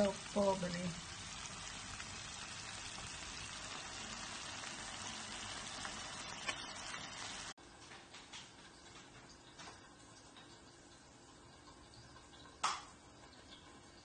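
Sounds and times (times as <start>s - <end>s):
potatoes sizzling in oil: 0.0s - 7.6s
oil crackle: 0.0s - 9.7s.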